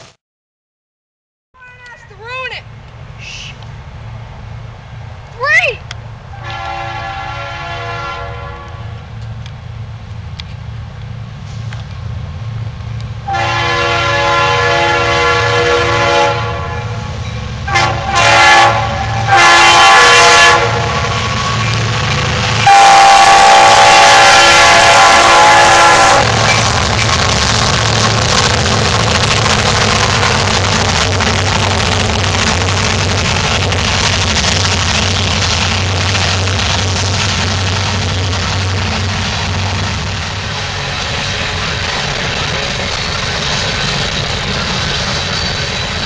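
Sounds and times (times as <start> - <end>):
diesel engines rumbling: 1.6 - 46.0
locomotive horn blasts: 6.3 - 8.9, 13.2 - 17.1, 17.7 - 21.9, 22.6 - 26.5.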